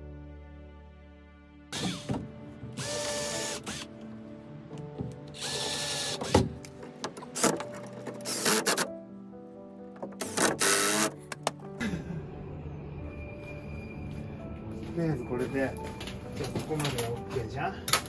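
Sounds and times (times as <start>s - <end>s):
cordless drill driving screws: 2.8s - 3.9s, 5.3s - 6.5s, 8.2s - 8.9s, 10.2s - 11.2s
handling clicks and knocks: 6.3s - 8.3s.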